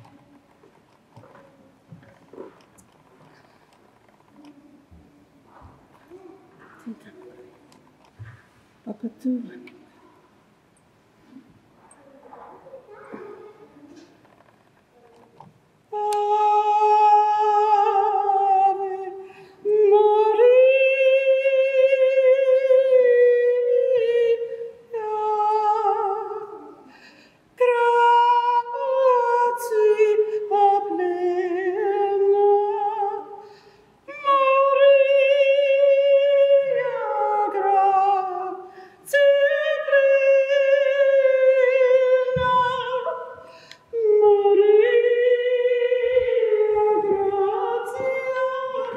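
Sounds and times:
woman singing unaccompanied: 15.9 - 26.9, 27.6 - 33.4, 34.0 - 48.9
breaths: 19.2 - 19.6, 26.8 - 27.6, 33.4 - 34.0, 38.7 - 39.0, 43.4 - 43.9.

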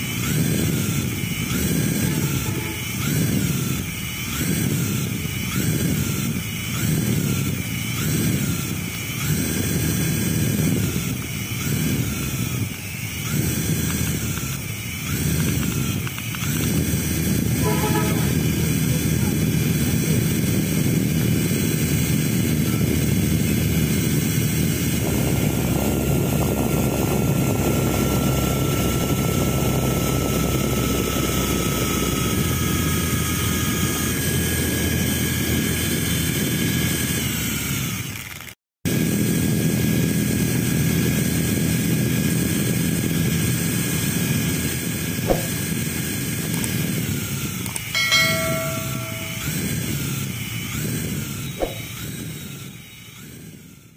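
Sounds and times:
toy helicopter motor whine: 0.0 - 53.9
short electronic chime: 17.6 - 18.6, 48.0 - 49.7.

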